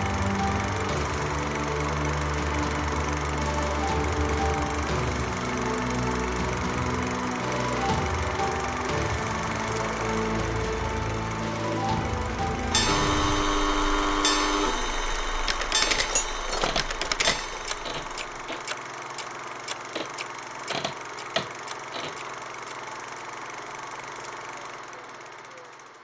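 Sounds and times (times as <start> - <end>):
held musical chord: 0.0 - 18.6.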